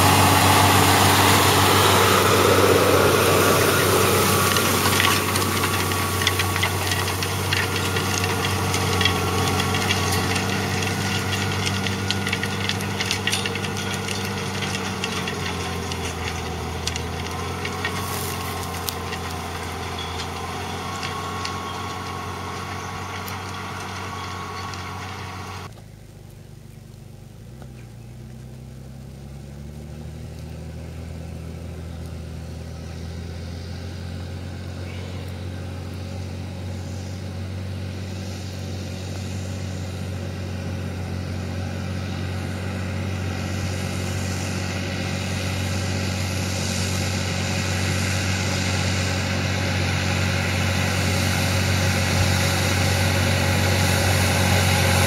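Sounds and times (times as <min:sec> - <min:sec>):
tractor diesel engine running: 0:00.0 - 0:55.0.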